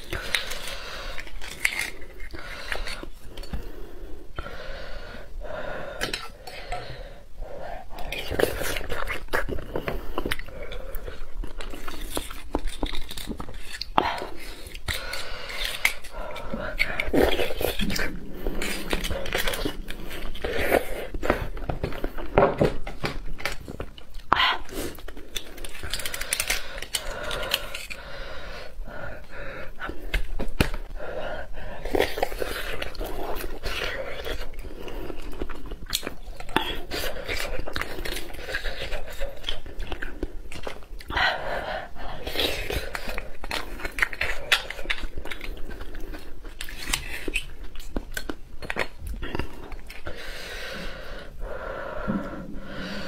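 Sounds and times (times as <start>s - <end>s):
chewing: 0.0s - 3.7s, 7.9s - 28.6s, 31.6s - 50.4s
chopsticks scraping and clicking: 0.0s - 3.7s, 6.0s - 6.9s, 8.0s - 28.0s.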